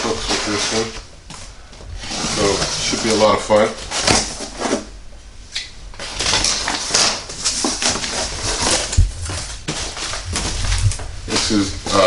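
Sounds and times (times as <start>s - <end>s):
cardboard flaps rustling and scraping: 0.0s - 4.9s, 6.0s - 12.0s
packing tape being cut: 6.0s - 12.0s.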